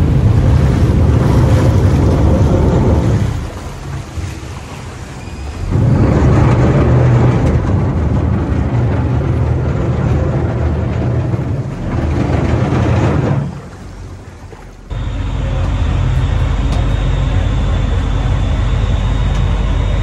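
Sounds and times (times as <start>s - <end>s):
boat diesel engine humming: 0.0s - 20.0s
water churning: 0.0s - 20.0s.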